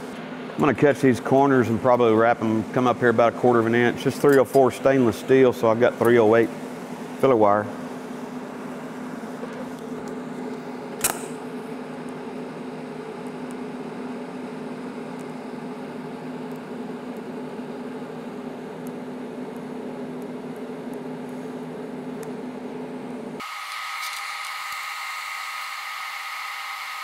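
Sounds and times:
welding arc humming: 0.0s - 27.0s
sharp click: 11.0s - 11.4s.

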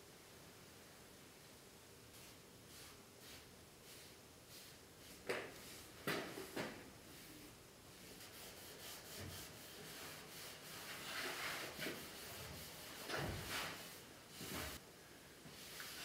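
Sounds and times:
cloth rag rubbing wood: 8.0s - 14.8s.

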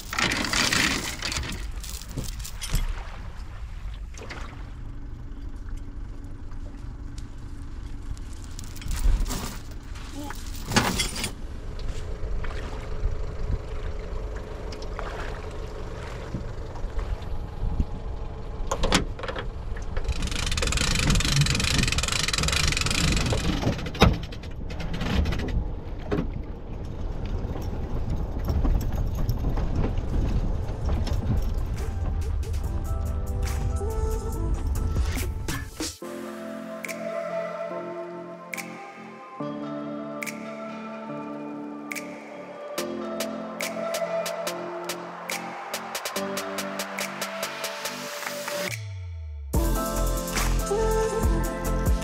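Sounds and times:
vehicle engine running: 4.6s - 10.6s, 11.4s - 24.8s.

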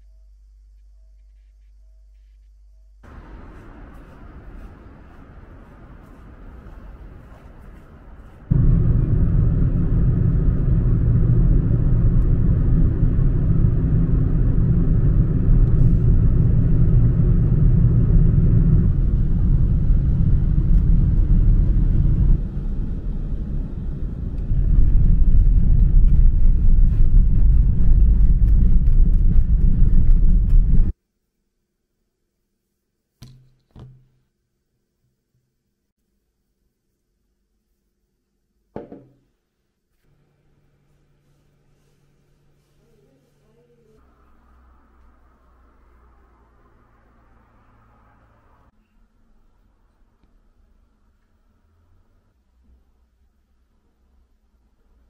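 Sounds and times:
wind buffeting microphone: 3.1s - 30.9s.

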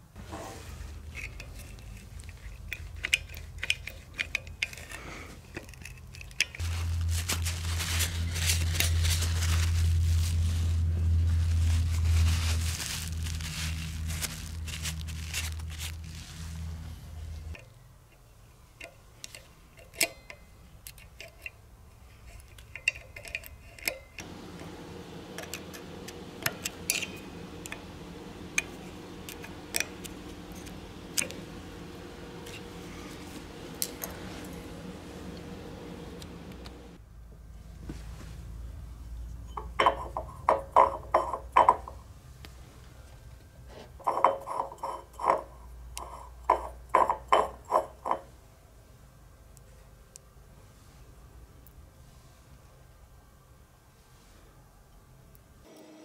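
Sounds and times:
small metal clicks and scrapes: 1.0s - 6.7s, 17.5s - 24.3s, 44.0s - 48.3s
cloth rubbing: 6.6s - 17.5s, 27.1s - 37.0s
steady low hum: 24.2s - 40.4s.

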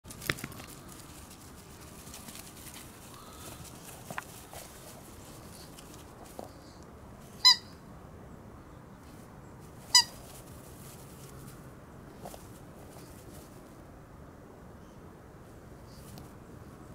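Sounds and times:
squeaky toy squeaks: 7.4s - 7.7s, 9.9s - 10.2s.

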